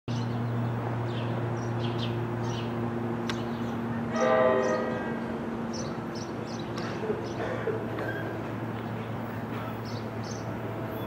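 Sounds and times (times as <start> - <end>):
birds chirping: 0.1 - 11.0
diesel locomotive droning: 0.1 - 11.0
train horn blast: 4.1 - 5.4.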